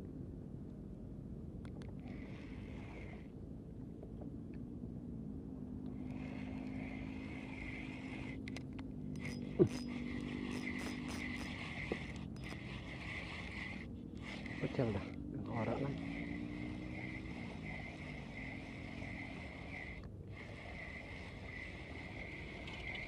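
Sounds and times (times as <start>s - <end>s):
low engine-like hum: 0.0s - 23.0s
fishing reel cranking whir: 2.0s - 3.3s, 5.9s - 23.0s
sharp squeak: 9.2s - 14.7s.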